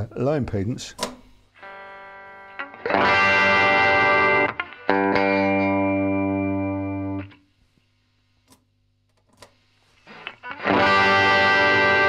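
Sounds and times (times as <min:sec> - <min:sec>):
electric guitar chord ringing: 0:01.6 - 0:07.4, 0:10.1 - 0:12.0.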